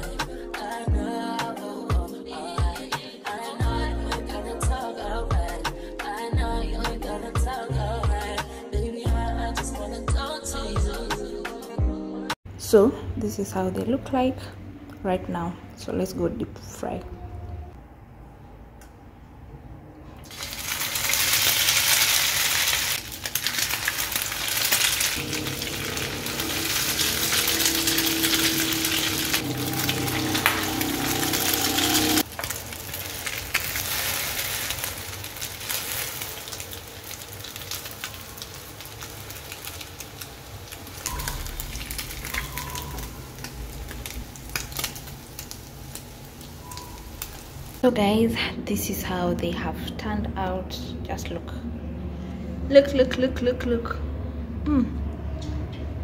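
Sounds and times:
food sizzling in hot oil: 20.2 - 47.9.

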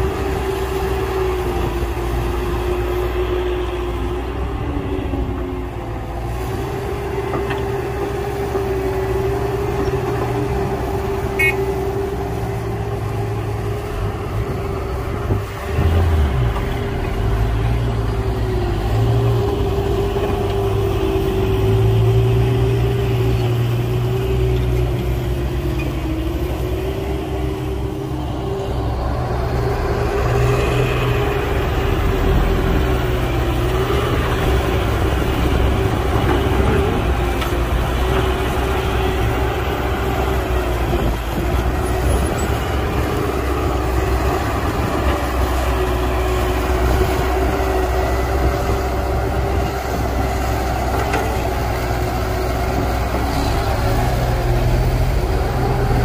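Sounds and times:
construction machinery diesel engines: 0.0 - 56.0.

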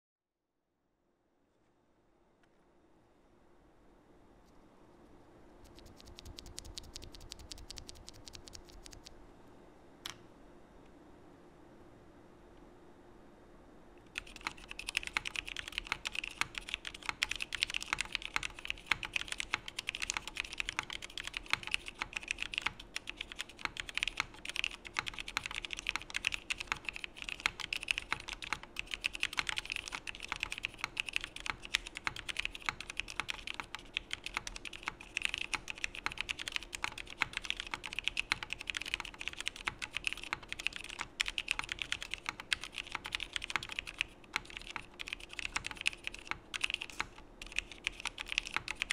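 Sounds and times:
mechanical keyboard typing: 5.6 - 9.1, 14.1 - 48.9.

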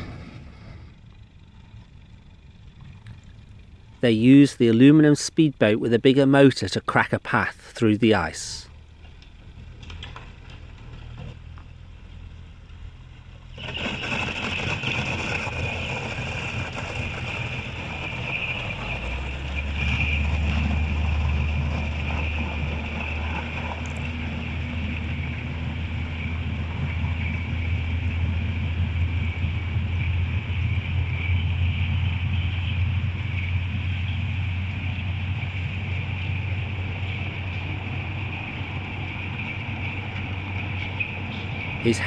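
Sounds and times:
low rumble: 0.0 - 7.7.

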